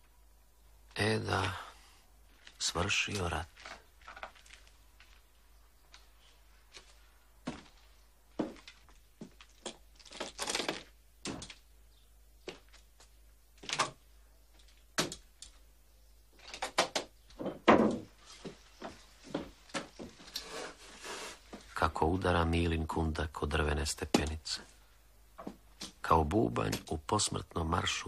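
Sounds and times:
footsteps on wooden boards: 0:06.7 - 0:11.6, 0:12.4 - 0:13.8, 0:17.3 - 0:20.3.

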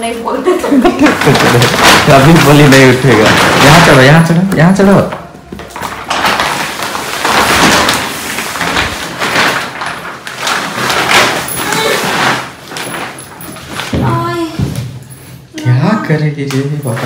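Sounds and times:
plastic packaging crinkling: 0:00.6 - 0:14.3
bundle dragged across tiled floor: 0:00.8 - 0:04.4, 0:05.7 - 0:14.4.

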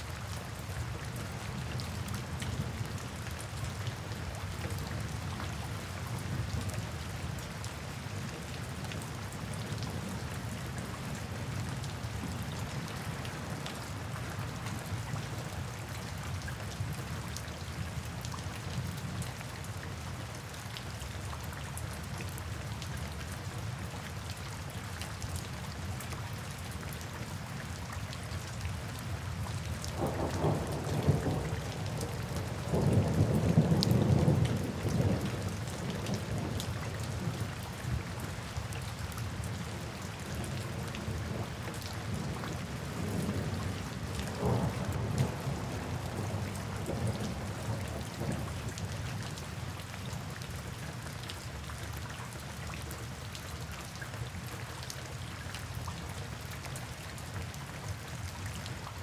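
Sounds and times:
steady rain falling: 0:00.0 - 0:59.0
thunder rumbling: 0:44.3 - 0:48.5.

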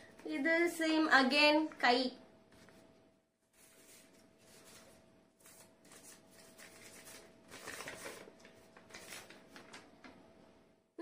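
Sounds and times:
paper sheets rustling: 0:03.5 - 0:10.2.

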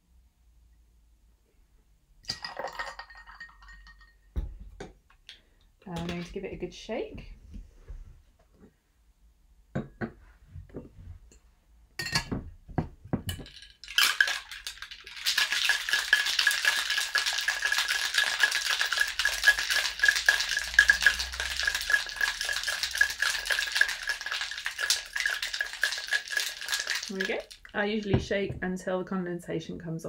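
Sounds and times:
ice rattling in metal shaker: 0:02.3 - 0:04.1, 0:13.3 - 0:28.1.

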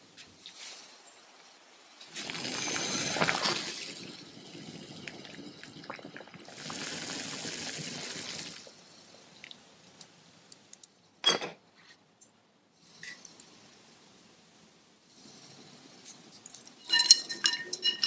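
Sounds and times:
small crackles: 0:00.2 - 0:11.0, 0:16.0 - 0:18.0
water bubbling and hissing: 0:02.1 - 0:09.7
glass lid clinking on pot: 0:16.8 - 0:18.0.

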